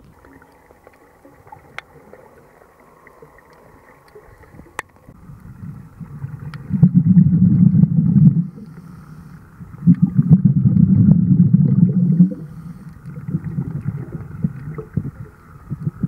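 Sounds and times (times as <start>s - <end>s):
faint underwater hiss: 0.0s - 16.0s
scuba exhalation bubbles: 4.2s - 9.0s, 9.6s - 16.0s.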